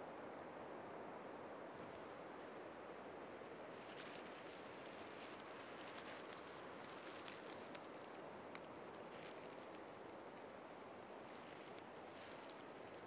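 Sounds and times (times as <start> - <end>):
wind through treetops: 0.0 - 13.0
faint small crackles: 3.6 - 13.0.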